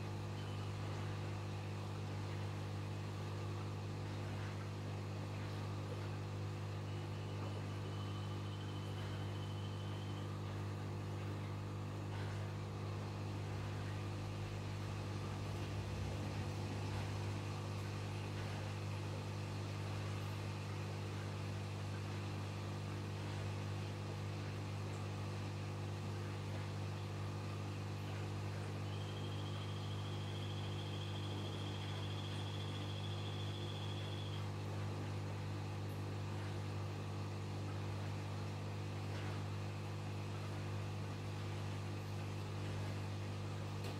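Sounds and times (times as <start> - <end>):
aquarium pump humming: 0.0 - 43.9
faint thin whine: 6.7 - 10.8.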